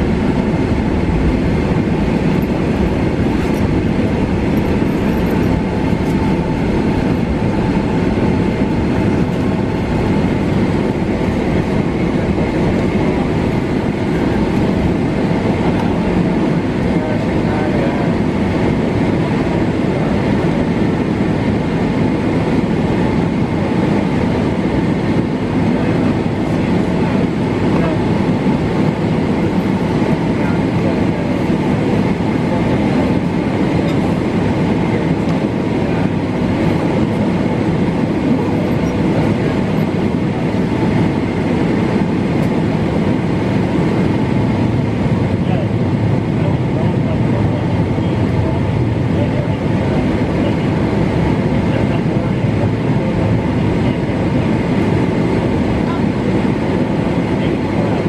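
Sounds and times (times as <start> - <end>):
faint steady whining tones: 0.0 - 58.0
jet engines idling: 0.0 - 58.0
wheels rumbling on taxiway: 0.0 - 58.0.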